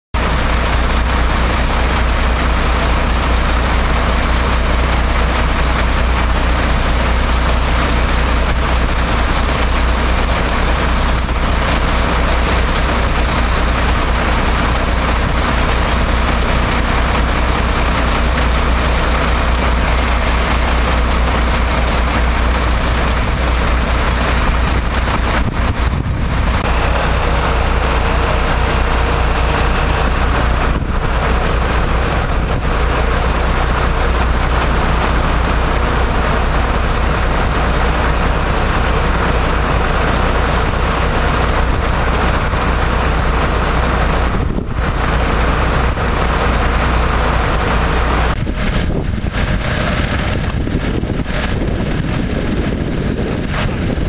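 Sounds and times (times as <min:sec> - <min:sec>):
engine idling: 0:00.1 - 0:54.0.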